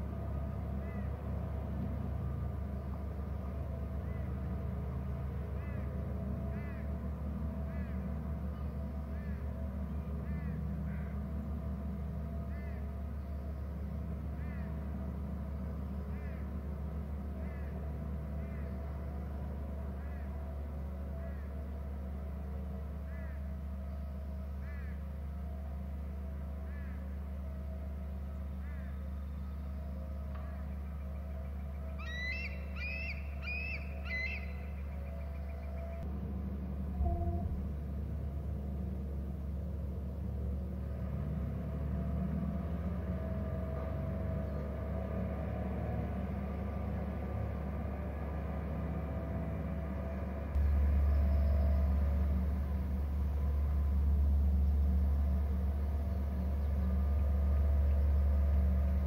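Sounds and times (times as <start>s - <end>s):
constant hum: 0.0s - 59.0s
bird chirping: 32.0s - 36.0s
low rumble: 35.8s - 39.6s, 50.5s - 59.0s.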